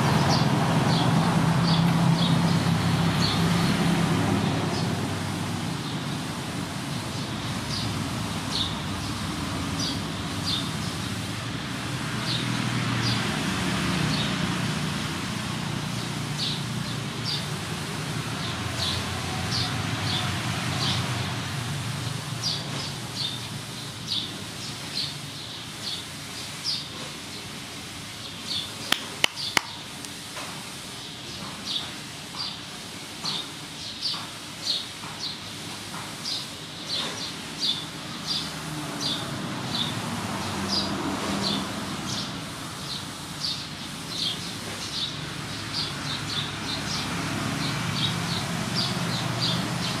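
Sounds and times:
small bird chirping: 28.5 - 29.8.

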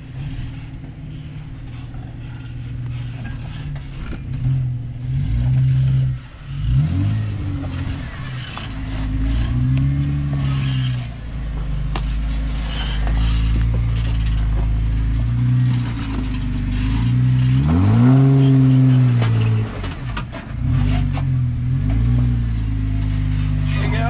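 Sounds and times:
engine revving: 0.0 - 24.0
knocks and scrapes on rocks: 7.1 - 17.7.

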